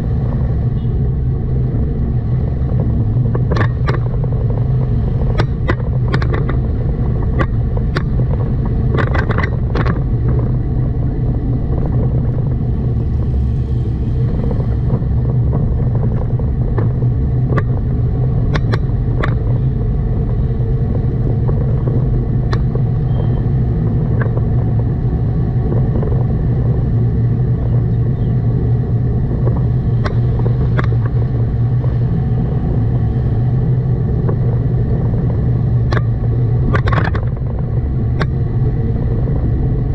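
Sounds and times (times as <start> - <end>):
car engine and road rumble: 0.0 - 39.9
sharp clicks or knocks: 3.3 - 4.5, 5.2 - 10.5, 18.5 - 19.6, 29.4 - 31.3, 35.8 - 37.6.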